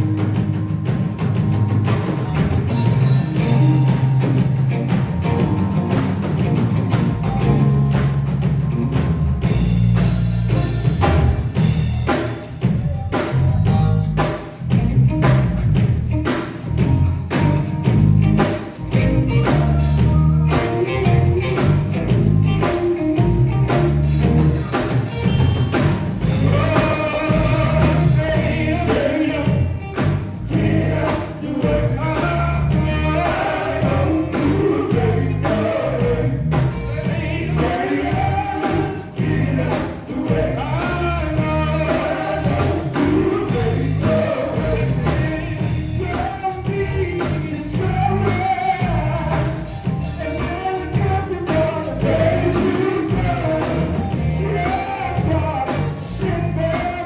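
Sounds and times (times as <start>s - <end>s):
live band playing upbeat groove: 0.0s - 57.0s
male vocal group singing: 18.9s - 22.2s, 25.8s - 57.0s.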